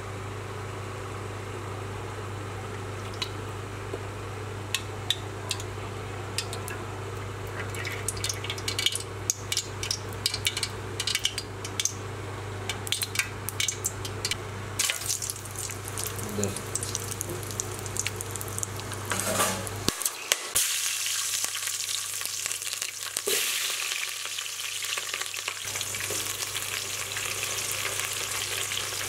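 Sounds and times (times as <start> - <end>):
oil crackling and popping: 7.5 - 12.0, 12.7 - 29.0.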